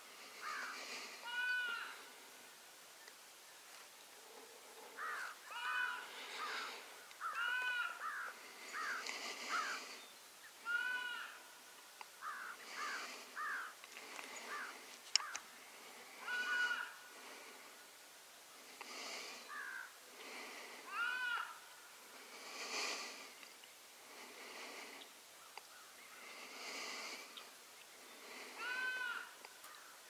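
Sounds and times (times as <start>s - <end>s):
harsh animal calls: 4.2s - 9.9s, 10.6s - 11.4s, 16.0s - 17.0s, 20.8s - 21.6s, 28.2s - 29.4s.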